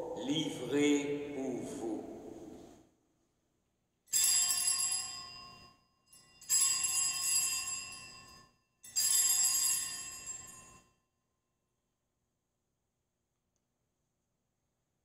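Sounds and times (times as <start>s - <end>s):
altar bells ringing: 4.1s - 10.9s.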